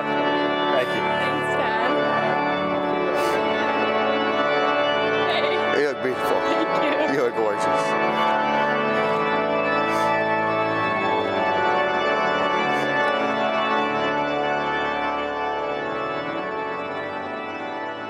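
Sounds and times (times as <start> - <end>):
church organ chords: 0.0 - 18.0.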